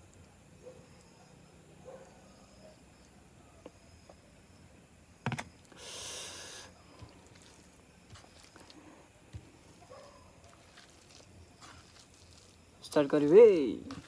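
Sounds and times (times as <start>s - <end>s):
rustling hiss: 5.6s - 14.0s
fingers squishing rice and gravy: 6.7s - 14.0s.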